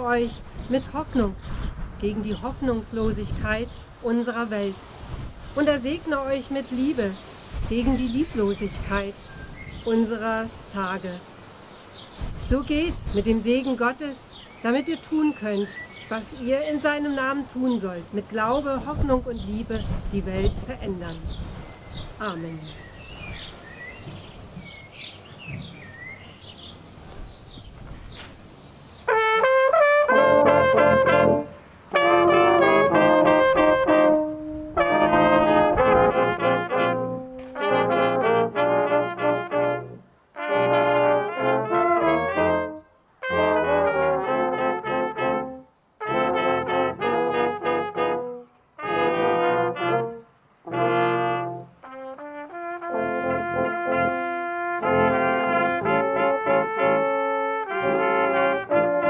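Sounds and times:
birds chirping faintly: 0.0 - 29.3, 42.4 - 43.1
brass choir playing slow piece: 29.1 - 59.0.

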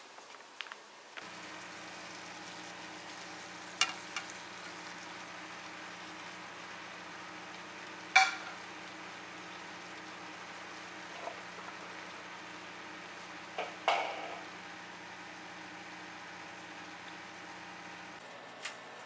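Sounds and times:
chicken sizzling in frying pan: 0.1 - 18.2.

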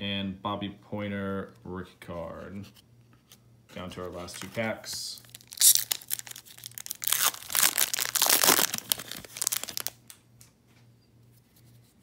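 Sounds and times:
card pack wrapper tearing: 5.2 - 10.1.

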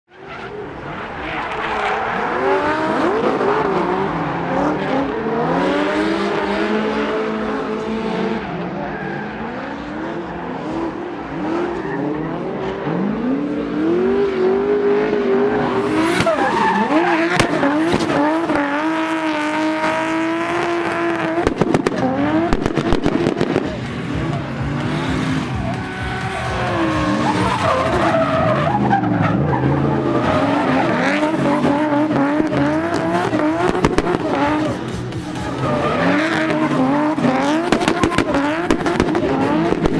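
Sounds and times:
car engine revving hard: 1.9 - 8.6, 9.3 - 39.9
sharp crack: 17.3 - 18.2, 21.3 - 24.0
exhaust pops: 20.8 - 24.4, 37.5 - 39.9.

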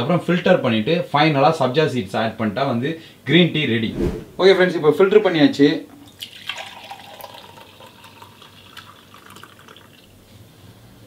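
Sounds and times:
tea pouring into mug: 5.9 - 10.1.

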